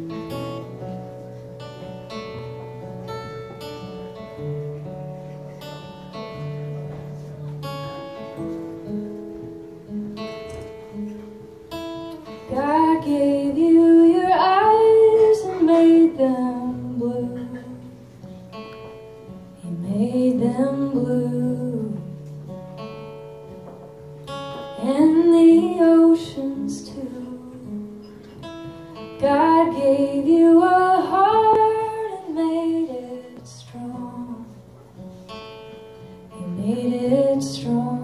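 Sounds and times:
acoustic guitar: 0.0s - 38.0s
woman singing: 12.4s - 18.0s, 19.6s - 22.2s, 24.8s - 28.1s, 29.0s - 34.7s, 36.3s - 38.0s.

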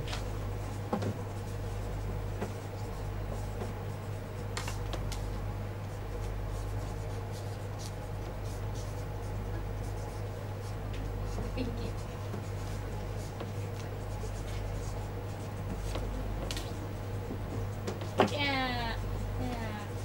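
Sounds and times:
low room hum: 0.0s - 20.0s
pen scratching on paper: 6.2s - 16.2s.

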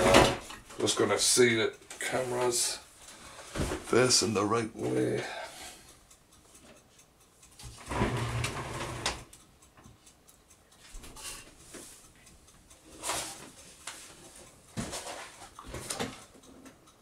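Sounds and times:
scraping shuffle handling noise: 13.0s - 16.1s.

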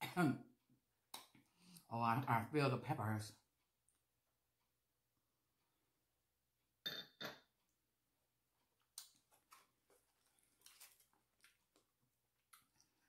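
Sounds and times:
paper crinkling: 9.2s - 12.0s.

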